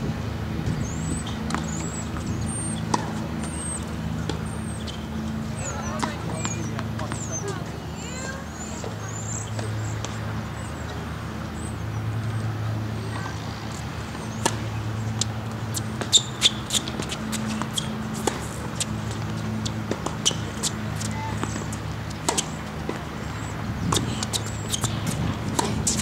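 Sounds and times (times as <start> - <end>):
racket striking tennis ball: 1.2 - 4.6, 14.1 - 23.1, 23.9 - 26.0
ball bouncing on hard court: 15.2 - 26.0.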